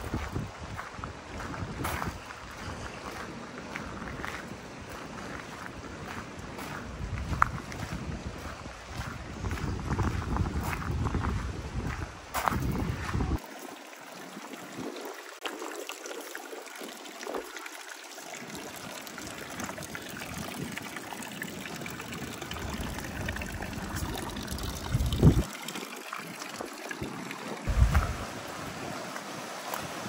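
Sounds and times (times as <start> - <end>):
wind buffeting microphone: 0.0 - 13.4, 22.3 - 25.5, 27.7 - 30.0
fountain water splashing: 13.3 - 30.0.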